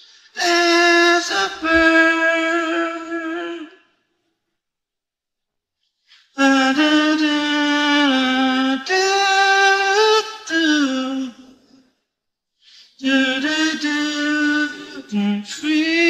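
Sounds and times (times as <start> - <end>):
man singing unaccompanied: 0.3 - 3.9, 6.2 - 11.6, 12.9 - 16.0.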